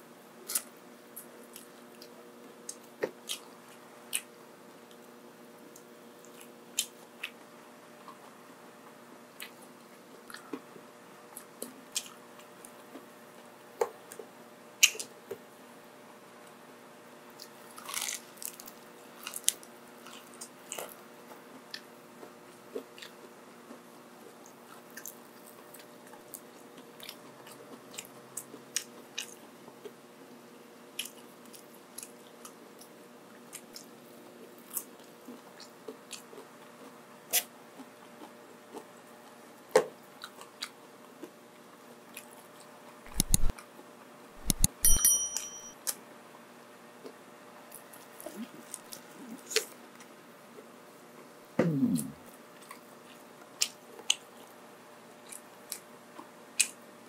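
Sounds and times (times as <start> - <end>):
faint steady hum: 0.0 - 57.0
crunchy chewing: 17.4 - 30.0, 31.0 - 41.4, 47.6 - 50.1, 52.2 - 56.8.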